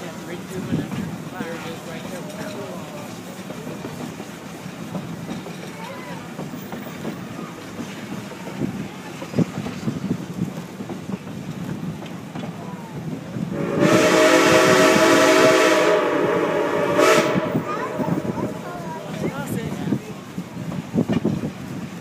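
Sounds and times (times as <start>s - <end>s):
train wheels clattering over rails: 0.0s - 22.0s
steam locomotive whistle blast: 13.5s - 18.2s.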